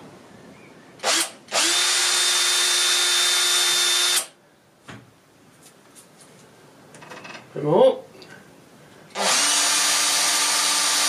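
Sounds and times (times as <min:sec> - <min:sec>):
power drill boring: 0:01.0 - 0:04.3, 0:09.1 - 0:11.0.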